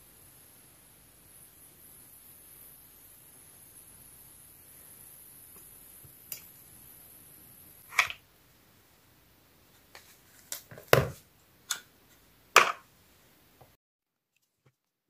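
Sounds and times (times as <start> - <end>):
faint high steady tone: 0.0 - 7.8.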